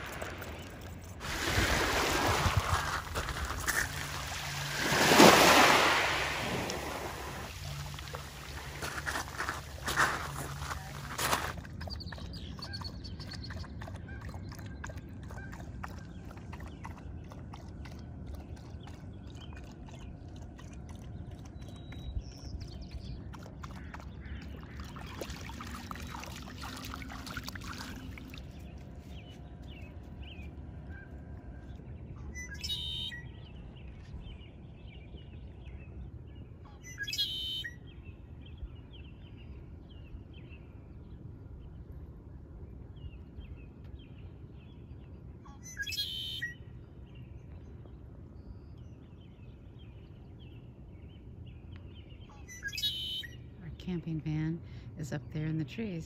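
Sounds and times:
dog lapping water: 6.7 - 28.7
small birds chirping: 7.5 - 31.0, 48.7 - 56.0.

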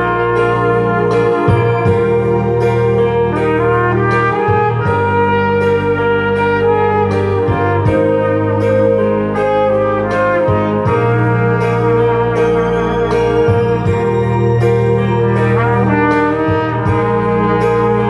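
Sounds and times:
backing track with light beat: 0.0 - 18.0
trumpet melody: 0.0 - 18.0.

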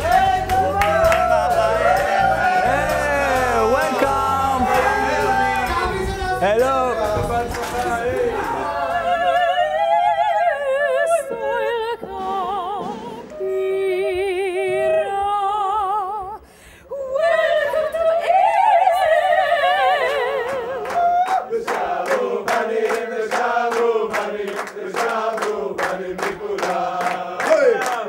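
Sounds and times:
hand claps: 0.0 - 8.6, 20.1 - 28.0
women singing opera: 8.1 - 21.9.

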